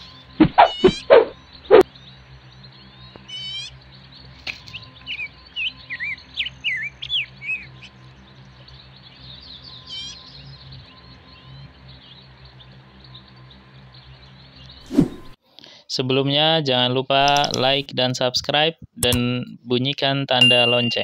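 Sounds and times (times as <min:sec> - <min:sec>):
birds chirping: 0:00.0 - 0:15.4, 0:20.4 - 0:21.0.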